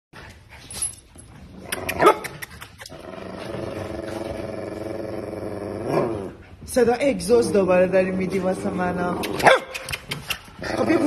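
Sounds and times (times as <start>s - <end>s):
small dog growling: 1.6s - 6.5s
dog barking: 9.4s - 9.8s.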